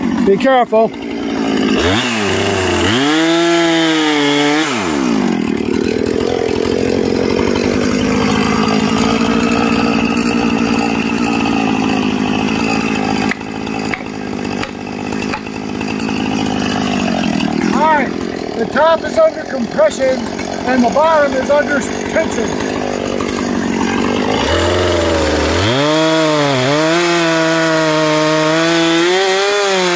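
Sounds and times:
chainsaw revving: 0:00.0 - 0:29.9
sharp knocks: 0:13.2 - 0:15.6.

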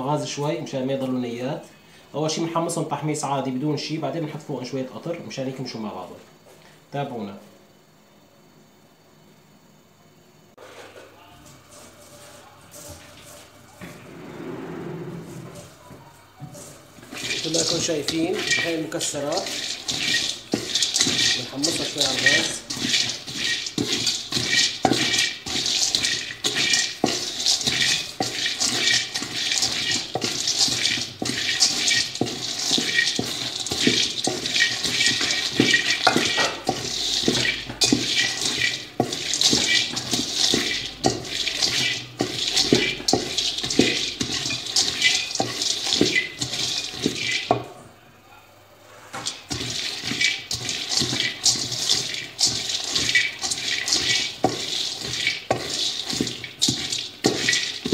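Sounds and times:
wooden spatula stirring: 0:11.4 - 0:47.8, 0:48.8 - 0:57.9
nuts rattling in metal pan: 0:16.5 - 0:47.8, 0:49.2 - 0:57.9.

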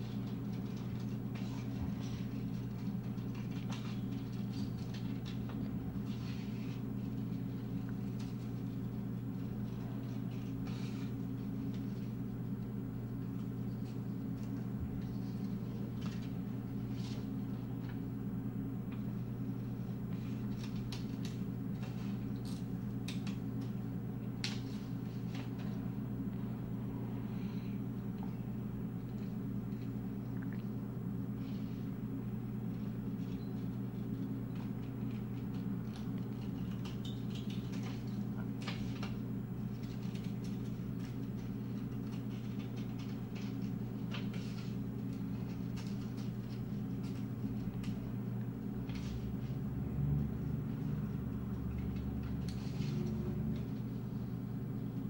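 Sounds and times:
low background hum: 0:00.0 - 0:55.0.

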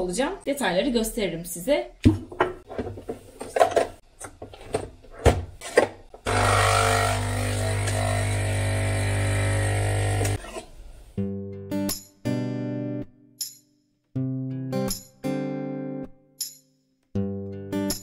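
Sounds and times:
coffee machine pump humming: 0:06.3 - 0:10.4.

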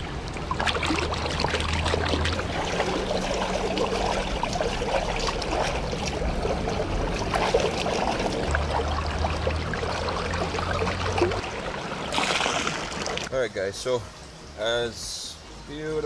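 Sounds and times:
stream trickling over stones: 0:00.0 - 0:13.3
hands splashing in water: 0:00.4 - 0:11.4, 0:12.1 - 0:13.3.

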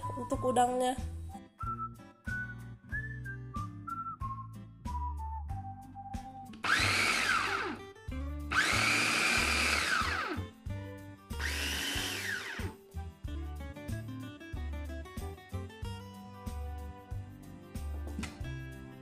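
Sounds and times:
background music with beat: 0:00.0 - 0:19.0
food chopper motor whine: 0:06.6 - 0:07.8, 0:08.5 - 0:10.5, 0:11.4 - 0:12.8.

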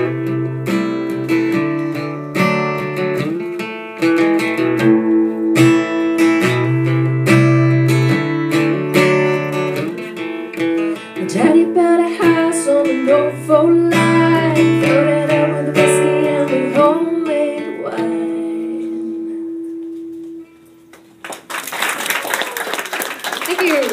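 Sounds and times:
acoustic guitar strumming: 0:00.0 - 0:21.2
woman singing: 0:11.2 - 0:19.5
audience clapping: 0:20.9 - 0:23.9.

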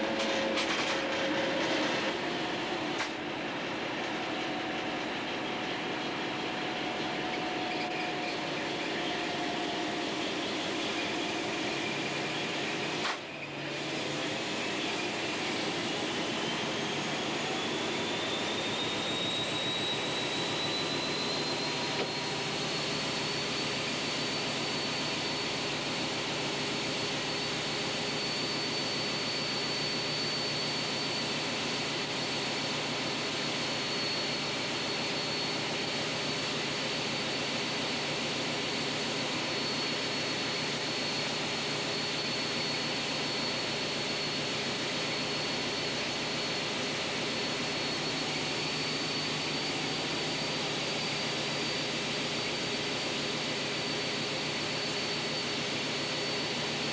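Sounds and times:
train engine and running noise: 0:00.0 - 0:56.9
thin high whine: 0:14.8 - 0:56.9.

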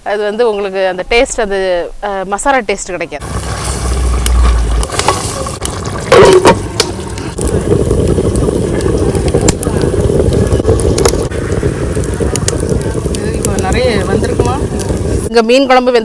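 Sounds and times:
loud scrape: 0:03.2 - 0:07.4
burning log crackles: 0:03.2 - 0:15.9
stove fire draft rushing: 0:03.2 - 0:15.9.

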